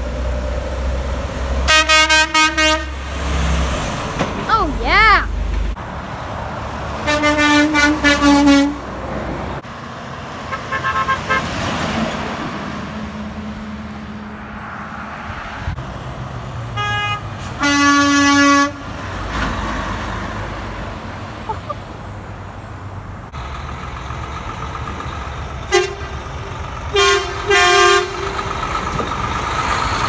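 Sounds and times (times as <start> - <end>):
truck engines running: 0.0 - 30.0
truck horns honking: 1.6 - 3.4, 7.0 - 9.1, 10.4 - 11.6, 16.7 - 19.0, 25.6 - 29.0.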